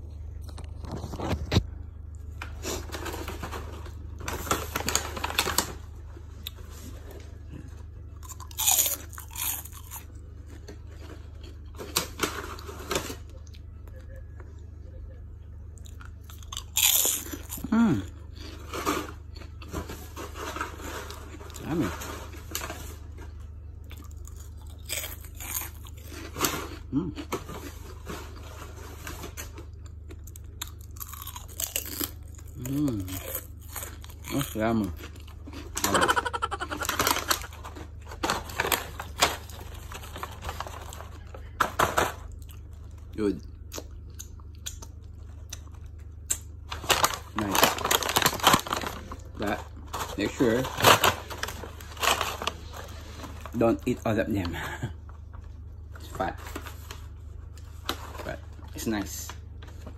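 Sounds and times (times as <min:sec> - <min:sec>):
paper bag crinkling: 0:02.6 - 0:07.3, 0:35.6 - 0:42.4, 0:46.6 - 0:54.2
crisp crunching bite: 0:08.2 - 0:13.6, 0:15.8 - 0:19.7, 0:23.8 - 0:28.4, 0:29.6 - 0:41.0.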